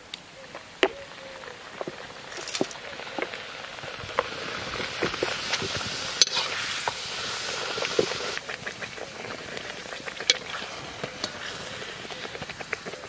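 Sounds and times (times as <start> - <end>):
oil sizzling with pops: 0.0 - 13.0.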